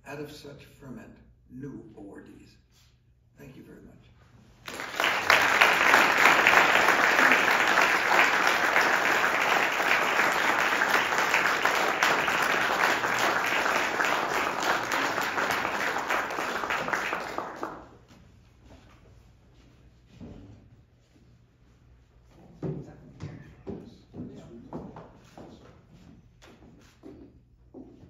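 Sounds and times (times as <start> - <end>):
audience applauding: 4.6 - 18.0.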